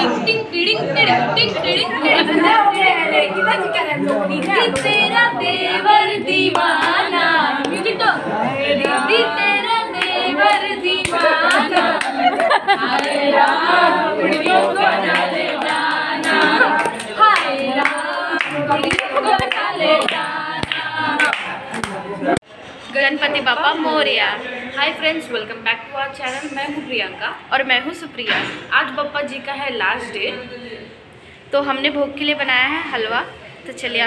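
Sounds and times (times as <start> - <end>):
women singing together: 0.0 - 22.4
hand clapping: 4.0 - 5.0, 6.4 - 8.0, 10.0 - 22.0.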